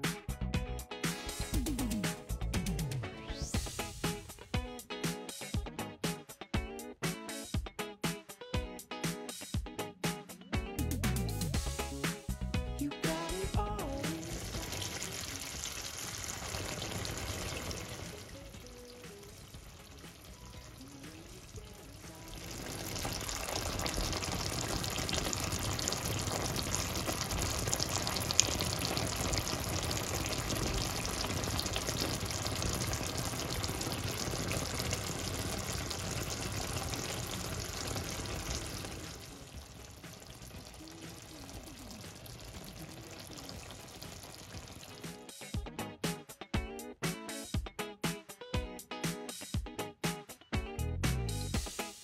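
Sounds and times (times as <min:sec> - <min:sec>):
sauce simmering and sizzling in a pan: 0:13.4 - 0:45.4.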